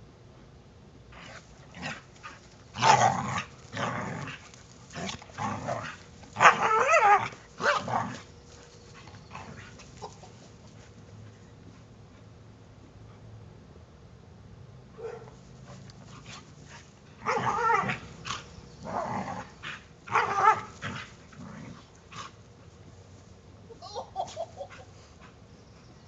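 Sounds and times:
dogs growling: 1.2s - 8.2s, 17.2s - 22.3s
dogs barking: 15.0s - 15.4s.

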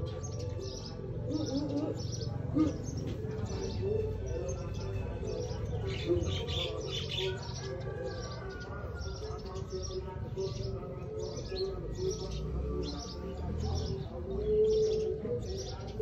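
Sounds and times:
cooing calls: 0.0s - 16.0s
small birds chirping: 0.0s - 16.0s.

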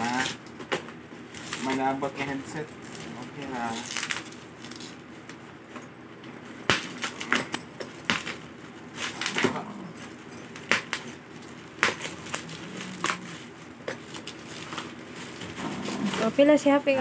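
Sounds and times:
plastic wrapping tearing and crinkling: 1.3s - 5.1s, 11.8s - 16.5s.

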